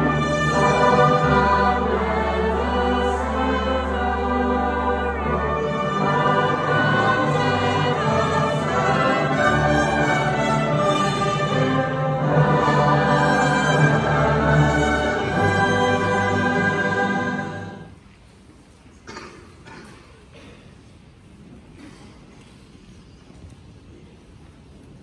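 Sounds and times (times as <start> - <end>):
choir and orchestra singing a carol: 0.0 - 18.0.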